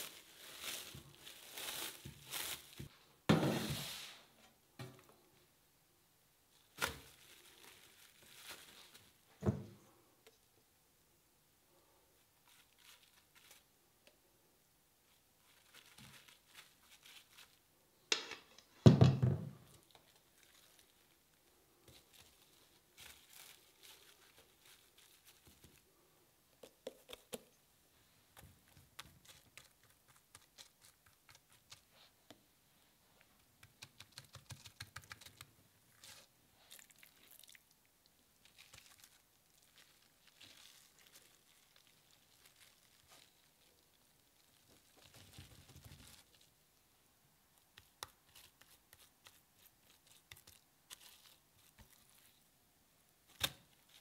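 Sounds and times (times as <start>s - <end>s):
cling film crinkling: 0.0s - 2.9s, 6.7s - 9.2s, 12.4s - 13.7s, 15.1s - 17.6s, 19.7s - 25.8s, 38.4s - 46.5s, 47.8s - 52.4s
thump: 3.3s - 3.8s, 9.4s - 9.8s.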